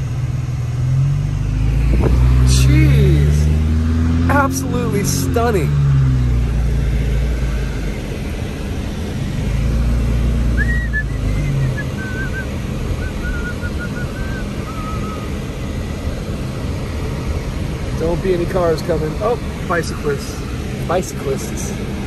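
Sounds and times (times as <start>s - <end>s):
car engine hum: 0.0s - 22.0s
road noise: 0.0s - 22.0s
faint wavering whistle-like tone: 10.5s - 15.3s.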